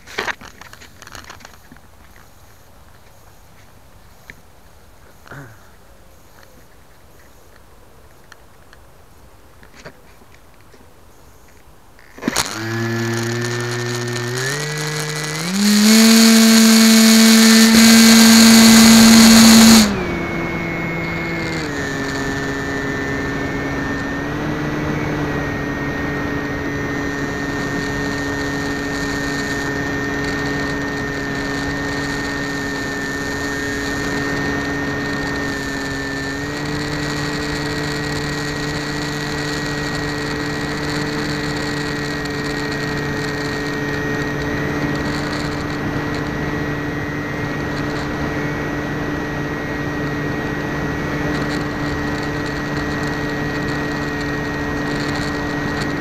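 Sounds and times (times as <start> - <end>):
model aircraft motor whine: 12.1 - 56.0.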